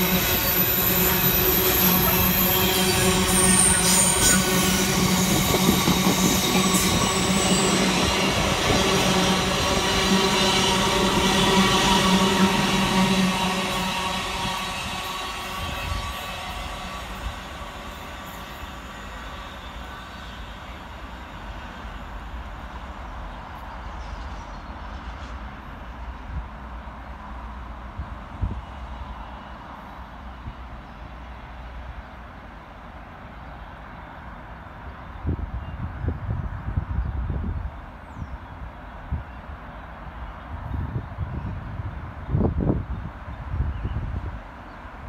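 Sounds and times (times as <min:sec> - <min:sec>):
steel wheels rumbling on rails: 0:00.0 - 0:26.9.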